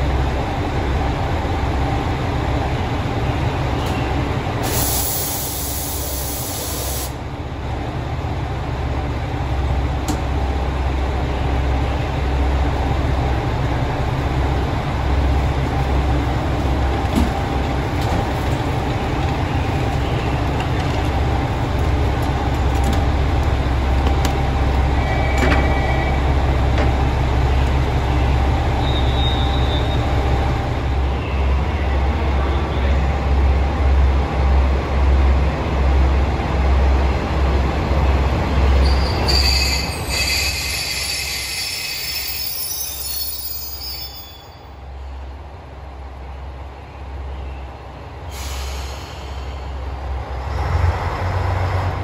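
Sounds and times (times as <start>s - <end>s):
diesel railcar engines idling: 0.0s - 52.0s
compressed air hiss: 4.6s - 7.2s, 48.3s - 49.6s.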